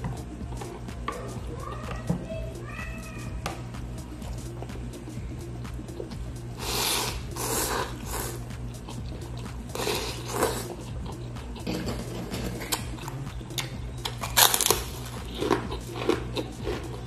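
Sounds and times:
chewing: 5.9 - 11.8, 12.6 - 17.0
crunchy cracker bites: 14.2 - 16.6.

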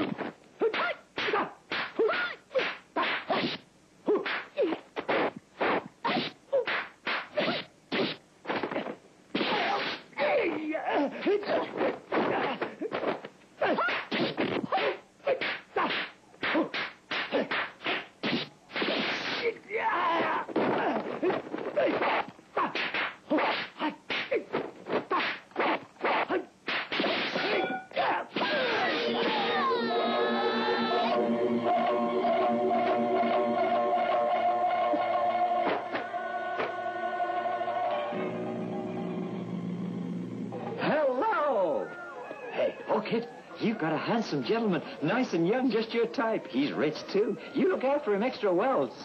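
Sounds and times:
punch and kick whacks: 0.8 - 10.0, 25.0 - 27.7
short fighting cries: 13.6 - 29.8.

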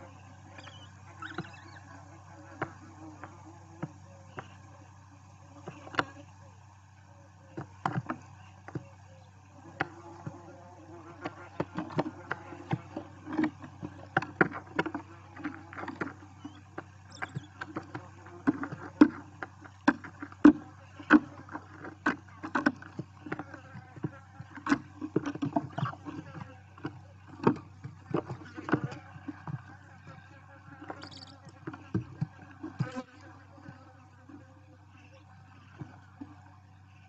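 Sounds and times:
owl chicks scrabbling in nest: 0.0 - 1.9, 15.4 - 19.6, 30.9 - 33.0
low electrical hum: 0.0 - 37.0.

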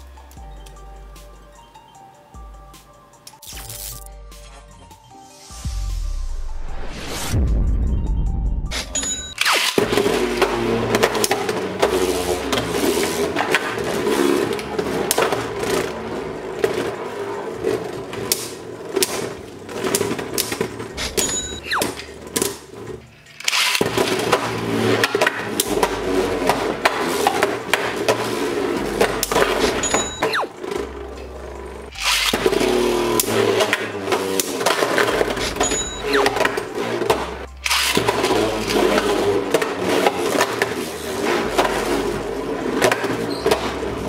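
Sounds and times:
spinning tops whirring: 18.0 - 44.0.

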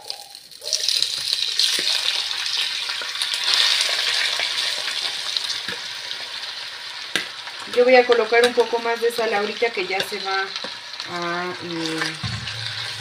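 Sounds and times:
meat sizzling in hot oil: 0.0 - 13.0.

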